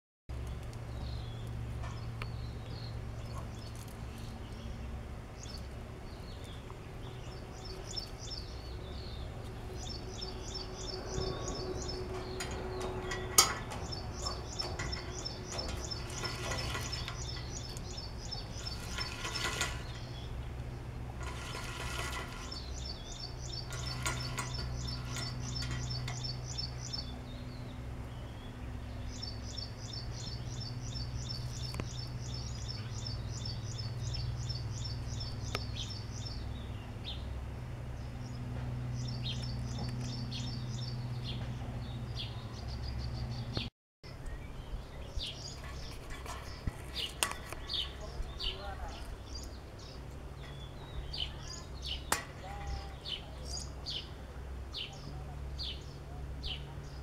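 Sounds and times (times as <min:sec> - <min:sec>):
steady low hum: 0:00.3 - 0:57.0
small bird chirping: 0:00.4 - 0:37.3.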